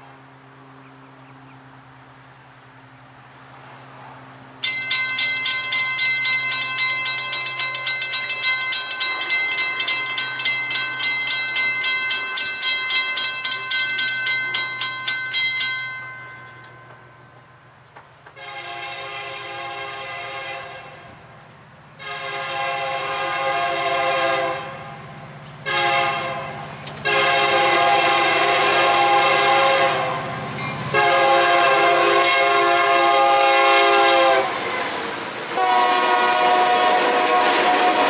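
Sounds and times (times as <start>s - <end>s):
diesel locomotive rumble: 0.0s - 38.0s
train wheels clattering on rails: 4.0s - 18.6s, 25.1s - 38.0s
train air horn blasts: 18.3s - 21.2s, 22.0s - 34.8s, 35.5s - 38.0s.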